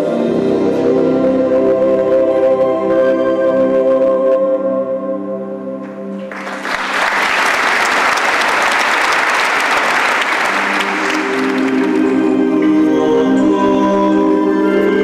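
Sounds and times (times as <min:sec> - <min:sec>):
music: 0:00.0 - 0:15.0
audience applauding: 0:06.2 - 0:12.6
held music chord: 0:10.2 - 0:15.0.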